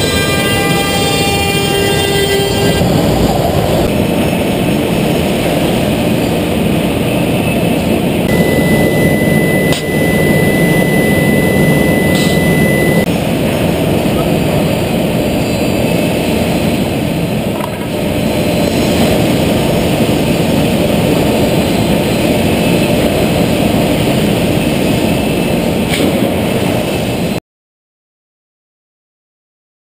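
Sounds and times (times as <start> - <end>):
machine running: 2.5 - 27.4
thin high whistle: 8.3 - 13.1.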